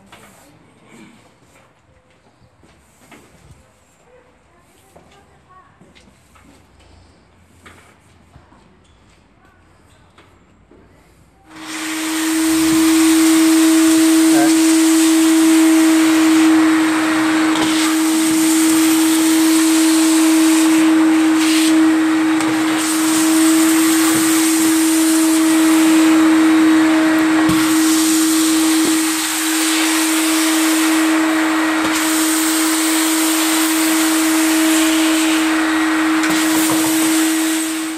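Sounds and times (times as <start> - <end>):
wet vacuum cleaner sucking water: 11.5 - 37.9.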